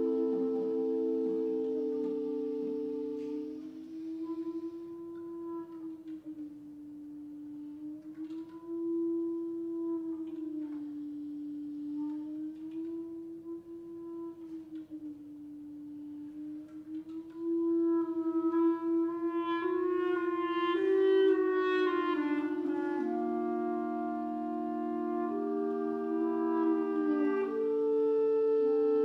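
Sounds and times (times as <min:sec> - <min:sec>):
clarinets sustained note: 0:00.0 - 0:05.3
clarinet lines: 0:00.0 - 0:29.0.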